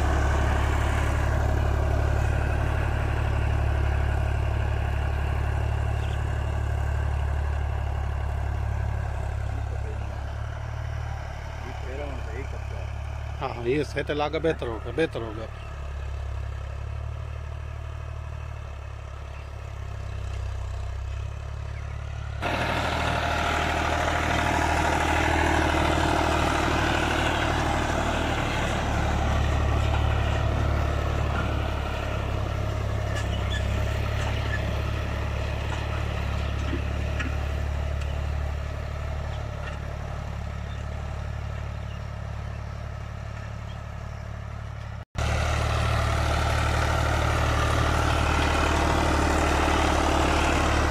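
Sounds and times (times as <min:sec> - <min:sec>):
diesel tractor engine running: 0:00.0 - 0:50.9.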